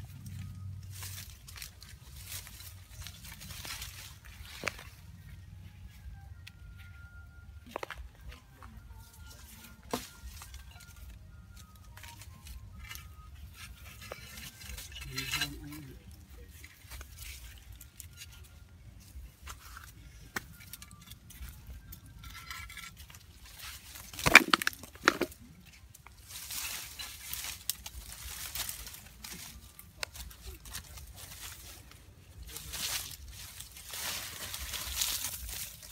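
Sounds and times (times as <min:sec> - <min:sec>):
leaves and twigs rustling: 0:00.0 - 0:06.9, 0:07.6 - 0:35.9.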